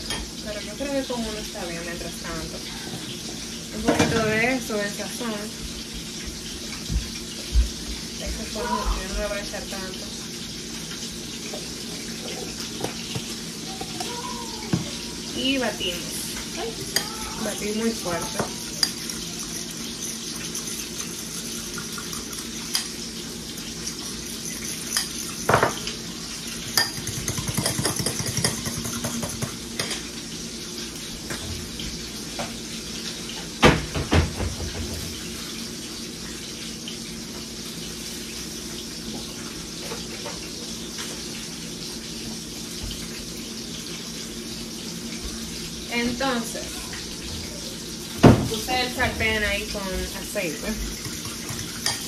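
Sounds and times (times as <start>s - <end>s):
fish frying in oil: 0.0s - 52.0s
refrigerator hum: 0.0s - 52.0s
dishes and cutlery clattering: 26.6s - 30.1s, 51.0s - 52.0s.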